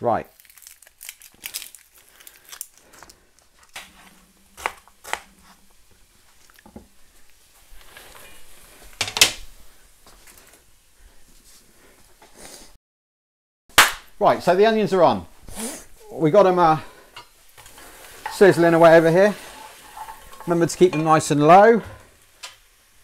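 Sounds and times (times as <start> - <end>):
onion crackling: 0.3 - 10.7, 17.0 - 21.4.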